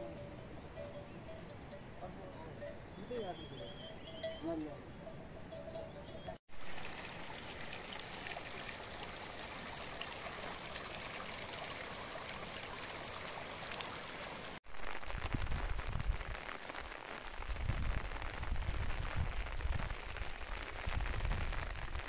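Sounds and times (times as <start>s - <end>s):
steady rain falling: 6.5s - 22.0s.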